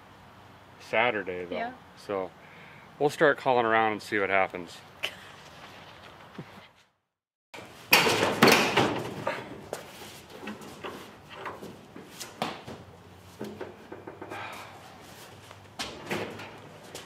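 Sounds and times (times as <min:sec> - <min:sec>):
clunks and knocks: 0:10.4 - 0:14.4.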